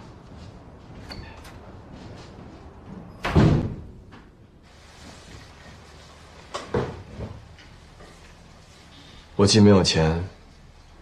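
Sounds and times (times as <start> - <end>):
door thumping shut: 3.2 - 4.1.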